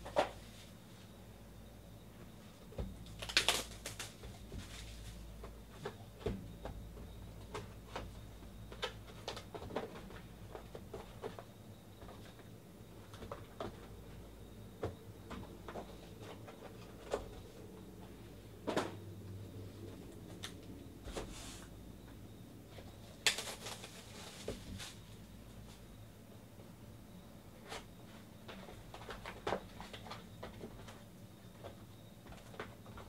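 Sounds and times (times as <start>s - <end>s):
cardboard boxes tapping and scraping: 2.8s - 17.6s
plastic wrap crinkling: 3.1s - 4.9s, 23.2s - 25.0s.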